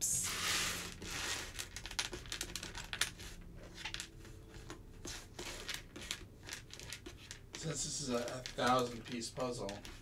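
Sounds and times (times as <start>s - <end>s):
wooden puzzle pieces clicking: 1.6s - 3.1s, 5.4s - 10.0s.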